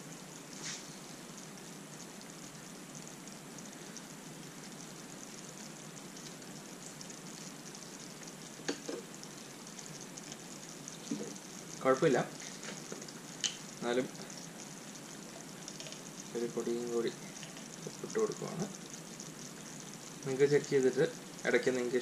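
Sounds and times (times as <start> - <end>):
sauce simmering bubbling: 0.0 - 22.0.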